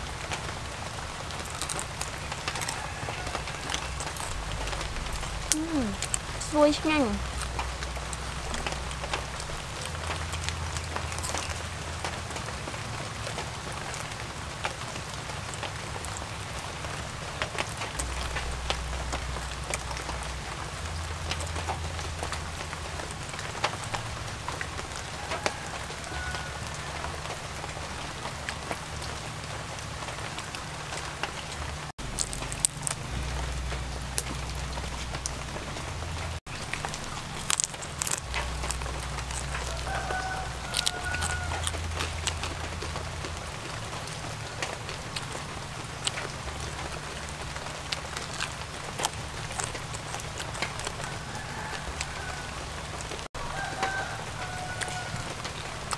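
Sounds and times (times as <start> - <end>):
light rain pattering: 0.0 - 55.9.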